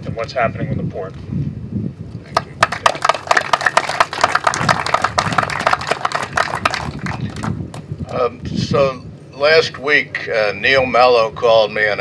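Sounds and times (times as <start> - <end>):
audience applauding: 2.4 - 7.7.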